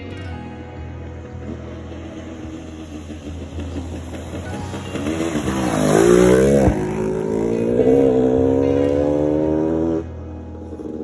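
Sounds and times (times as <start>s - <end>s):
dirt bike engine revving: 3.7s - 10.1s.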